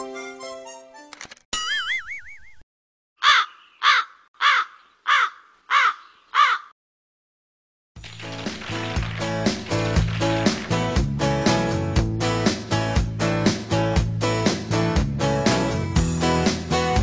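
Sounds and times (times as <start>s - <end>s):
music: 0.0s - 1.1s, 8.0s - 17.0s
crow cawing: 3.2s - 6.7s.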